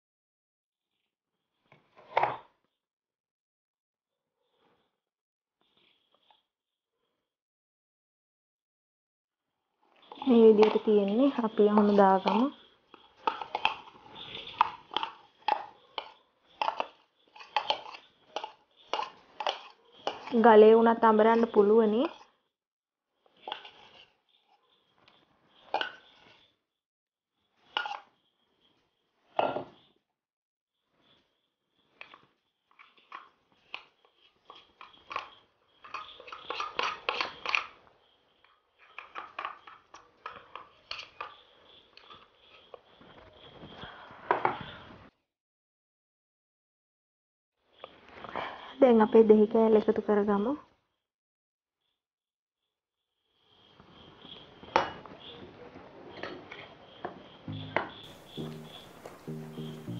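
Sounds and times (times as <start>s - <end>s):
utensil scraping and clicking on container: 10.1s - 20.4s, 34.5s - 37.7s.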